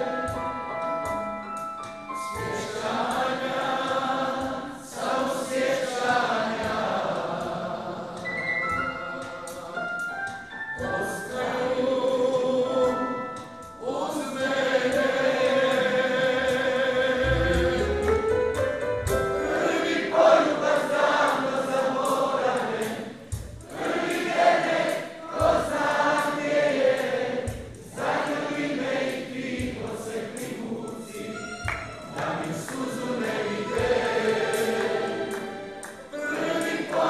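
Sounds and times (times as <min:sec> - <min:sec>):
drums: 0:00.0 - 0:37.0
keyboard: 0:00.0 - 0:37.0
women singing backing vocals: 0:10.8 - 0:18.0, 0:32.1 - 0:37.0
man singing lead vocal: 0:10.9 - 0:18.2.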